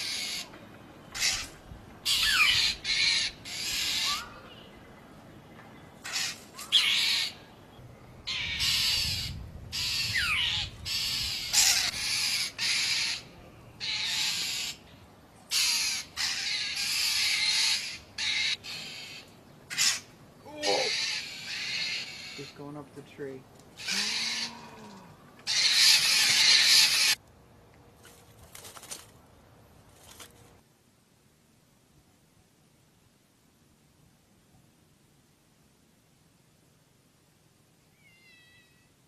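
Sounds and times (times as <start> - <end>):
crows cawing: 8.3 - 14.8, 15.5 - 22.6, 23.8 - 27.2.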